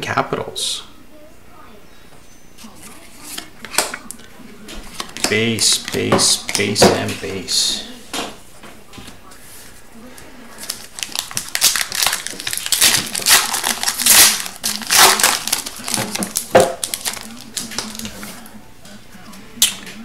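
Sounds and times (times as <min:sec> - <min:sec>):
wrapper snapping: 0:10.6 - 0:18.3
foil wrapper crinkling and tearing: 0:10.6 - 0:18.5.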